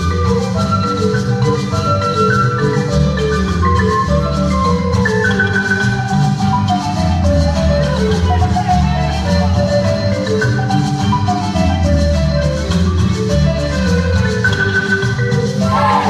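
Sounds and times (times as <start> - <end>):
marimba folk dance music: 0.0 - 16.0
steady bass line: 15.6 - 16.0.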